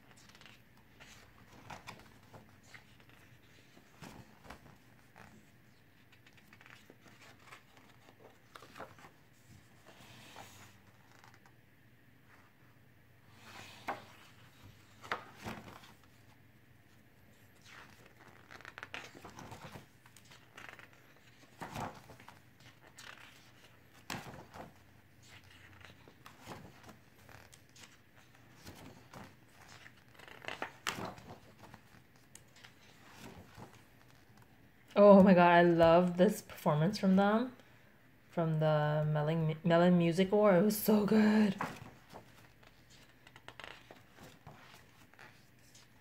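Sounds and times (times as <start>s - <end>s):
pages turning: 0.0s - 11.6s, 13.3s - 16.4s, 17.5s - 34.5s, 41.1s - 46.0s.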